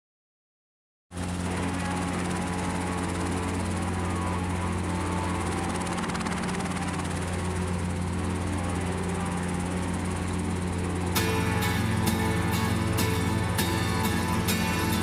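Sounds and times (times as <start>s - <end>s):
helicopter engine and rotor drone: 1.1s - 15.0s.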